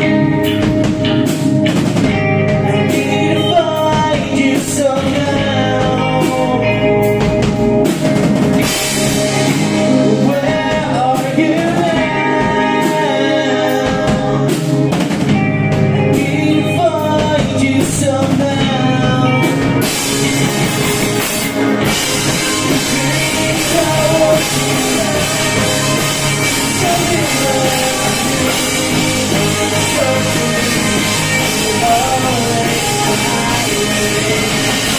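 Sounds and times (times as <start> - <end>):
drum kit: 0.0 - 34.9
electric guitars: 0.0 - 34.9
man singing: 2.5 - 7.9, 9.4 - 15.2, 15.9 - 34.9.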